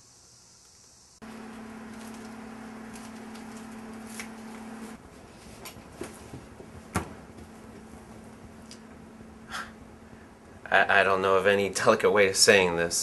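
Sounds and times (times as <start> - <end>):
insect chirring: 0.0 - 1.2
steady low hum: 0.0 - 13.0.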